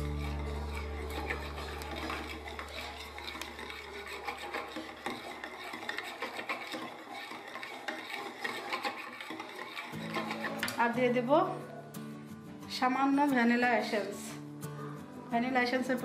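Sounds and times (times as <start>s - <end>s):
whisk beating batter in bowl: 0.0s - 10.8s.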